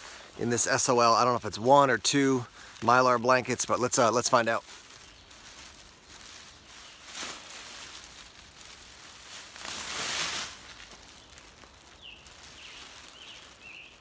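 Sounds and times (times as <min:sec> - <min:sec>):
emergency blanket crinkling: 0:00.0 - 0:14.0.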